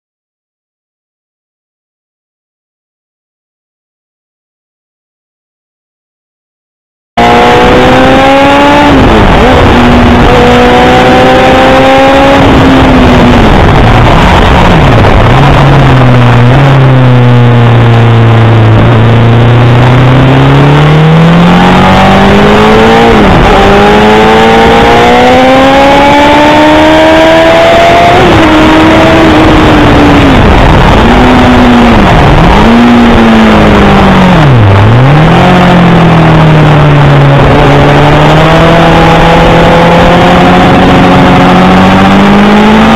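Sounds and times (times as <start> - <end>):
heavy wind noise: 7.2 - 42.9
motorcycle engine accelerating: 7.2 - 42.9.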